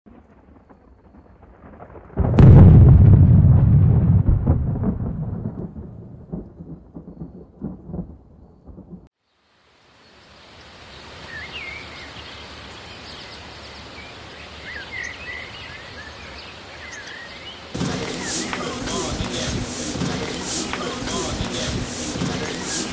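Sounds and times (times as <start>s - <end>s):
thunder rumbling: 0.1s - 9.1s, 17.8s - 22.9s
birds chirping: 11.3s - 22.9s
steady hiss: 17.8s - 22.9s.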